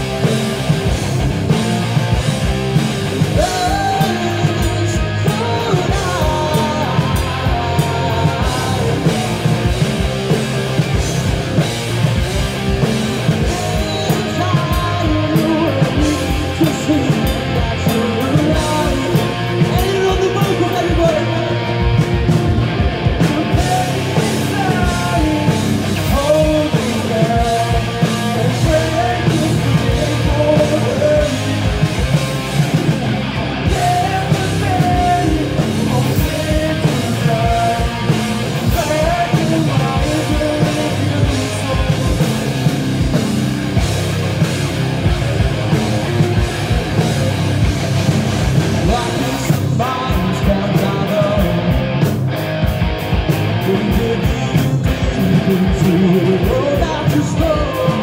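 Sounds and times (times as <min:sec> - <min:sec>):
rock band playing: 0:00.0 - 0:58.0
person singing: 0:03.2 - 0:11.2, 0:12.8 - 0:21.9, 0:23.1 - 0:32.7, 0:33.6 - 0:43.2, 0:48.7 - 0:52.0, 0:53.4 - 0:58.0.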